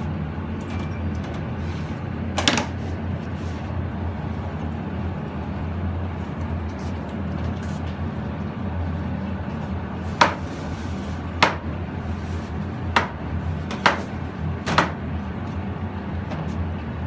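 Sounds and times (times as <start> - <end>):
steady low hum: 0.0 - 17.0
knife chopping on plastic board: 10.2 - 10.4, 11.4 - 11.6, 13.0 - 14.1.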